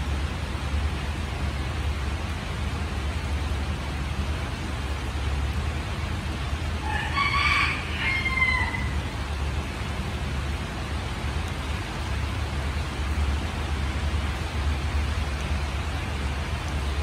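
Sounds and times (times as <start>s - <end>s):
steady rain hiss: 0.0s - 17.0s
rooster crowing: 6.8s - 9.1s.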